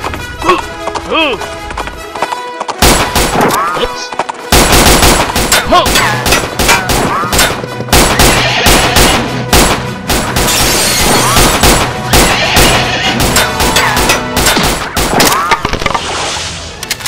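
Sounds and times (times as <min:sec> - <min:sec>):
background music: 0:00.0 - 0:17.0
rapid revolver gunshots: 0:02.8 - 0:03.6, 0:04.5 - 0:15.6.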